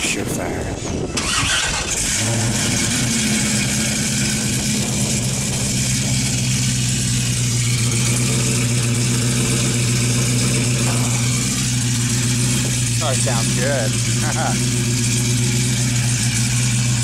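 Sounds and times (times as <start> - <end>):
car engine idling: 0.1 - 17.0.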